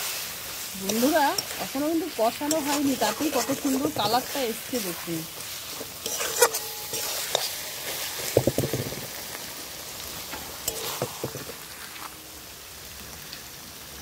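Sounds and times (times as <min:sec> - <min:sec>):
food sizzling in a pan: 0:00.0 - 0:14.0
metal spatula scraping a pan: 0:00.8 - 0:09.3, 0:10.2 - 0:12.2.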